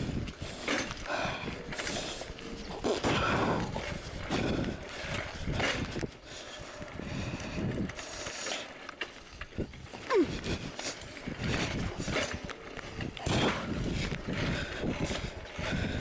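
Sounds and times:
mountain bike rattling and clicking: 0.0 - 16.0.

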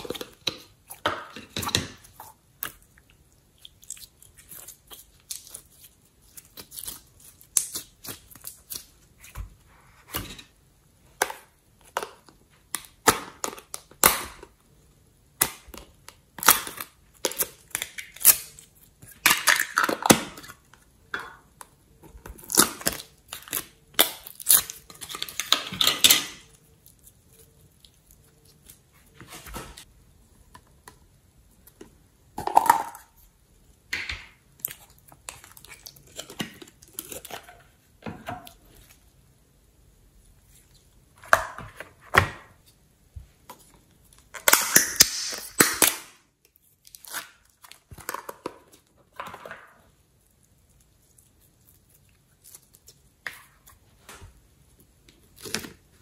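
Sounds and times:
slime squishing: 0.0 - 10.3.

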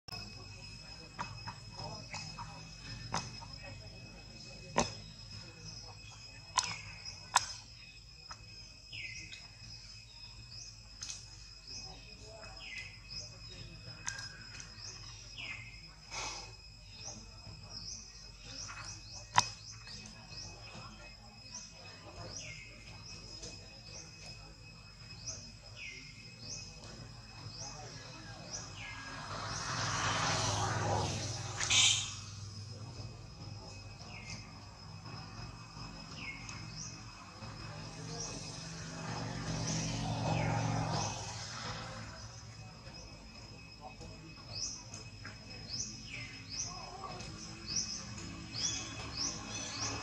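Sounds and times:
high insect drone: 0.1 - 50.0
small birds chirping: 0.1 - 50.0
short high chirping calls: 31.6 - 32.3.

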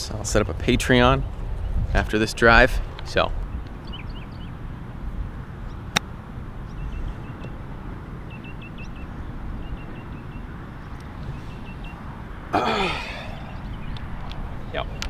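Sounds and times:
wind on microphone: 0.0 - 12.5
person exclaiming: 12.6 - 13.4.

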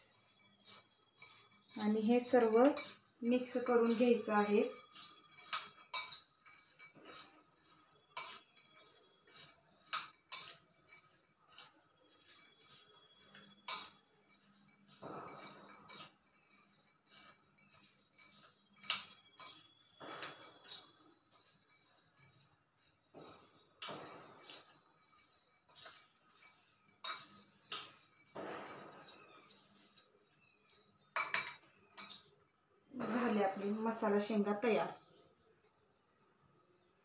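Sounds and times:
nuts rustling as stirred: 0.0 - 28.3
spoon clinking against glass bowl: 0.1 - 22.4, 23.8 - 29.9, 30.7 - 32.4.

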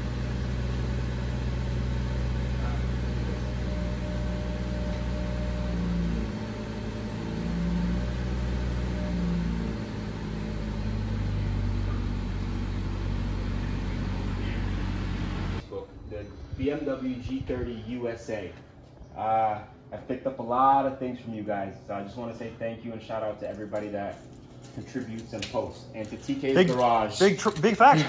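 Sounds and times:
car engine idling: 0.0 - 15.6.

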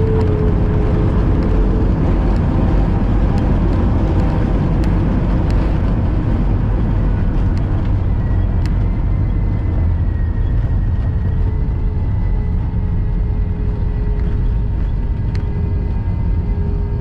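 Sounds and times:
jet cabin low roar: 0.0 - 17.0.

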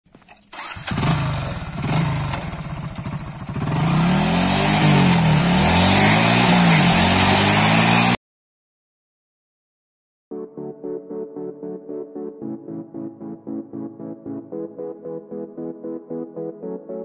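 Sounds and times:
motorcycle engine revving: 0.1 - 8.2
water spray from spinning tyre: 0.5 - 8.2.

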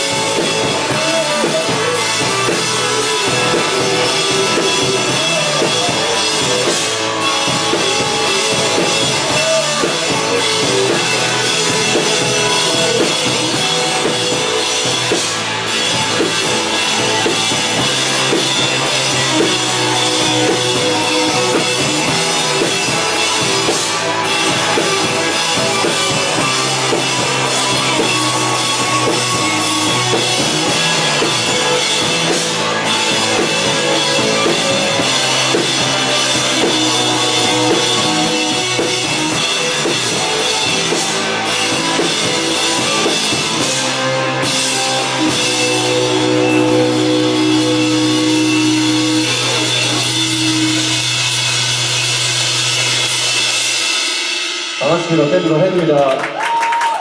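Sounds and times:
bass guitar: 0.0 - 57.0
drum kit: 0.0 - 57.0
electric guitars: 0.0 - 57.0.

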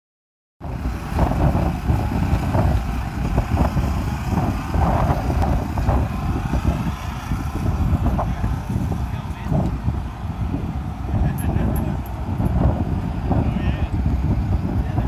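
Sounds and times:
diesel truck engine idling: 0.6 - 15.0.

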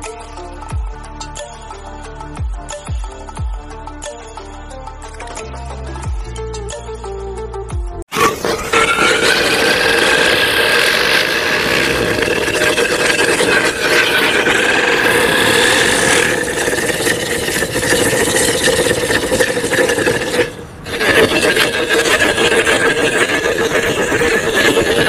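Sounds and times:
firework hissing and whining: 8.1 - 25.0.

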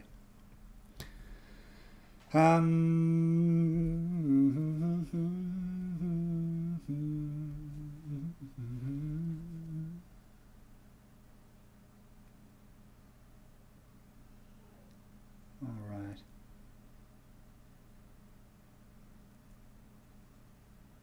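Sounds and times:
man humming low notes: 2.3 - 10.1.

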